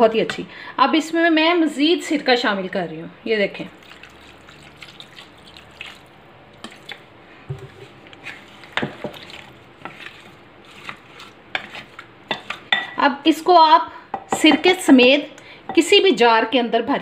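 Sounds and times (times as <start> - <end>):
spoon stirring wet pickle: 3.6 - 13.5
liquid pouring into bowl: 3.7 - 11.4.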